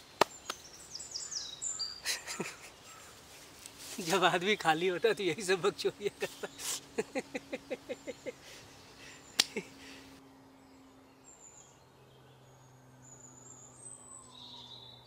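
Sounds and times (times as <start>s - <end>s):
low steady hum: 0.0s - 15.0s
man laughing: 2.0s - 2.9s, 5.0s - 10.0s
sharp click: 9.4s - 9.6s.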